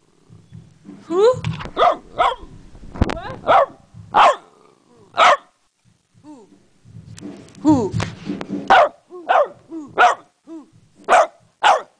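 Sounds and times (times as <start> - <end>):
dogs barking: 1.8 - 2.5, 3.4 - 4.5, 5.2 - 5.5, 8.7 - 10.3, 11.1 - 11.9
dog yelping: 11.1 - 11.9.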